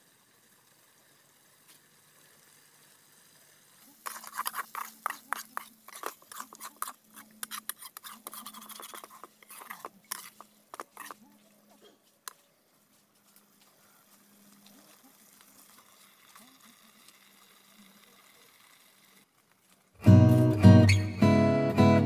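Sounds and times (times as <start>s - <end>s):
metal spatula scraping pan: 4.0s - 11.2s.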